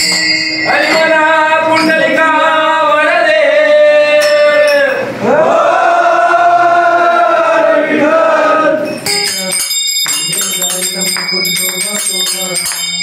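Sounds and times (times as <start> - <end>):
men singing devotional song: 0.4 - 8.8.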